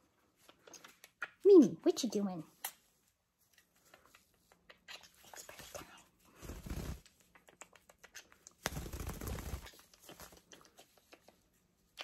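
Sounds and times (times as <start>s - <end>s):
parrot lip smacks and clicks: 0.4s - 1.4s, 3.5s - 5.7s, 7.0s - 8.6s, 9.6s - 12.0s.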